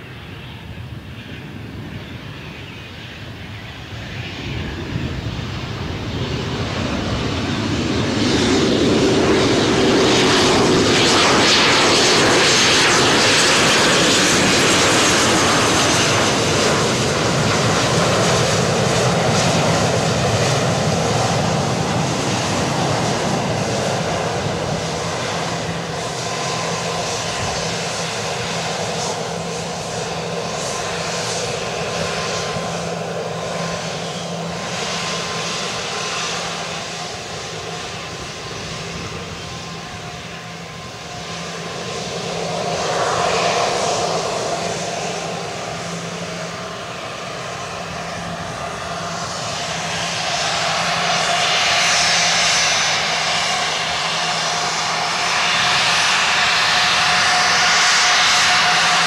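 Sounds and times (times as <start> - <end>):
jet engines whining: 0.0 - 59.0.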